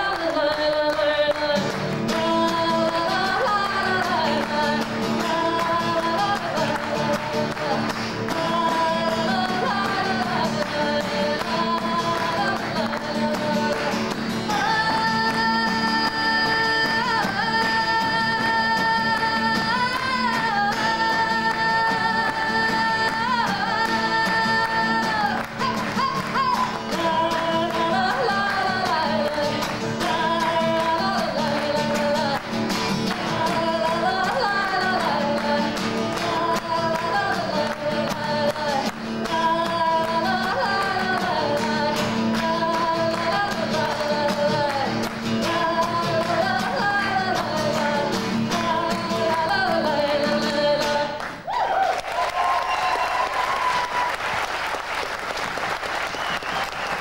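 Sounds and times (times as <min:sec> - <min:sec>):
strummed acoustic guitar: 0:00.0 - 0:51.4
woman singing: 0:00.0 - 0:51.5.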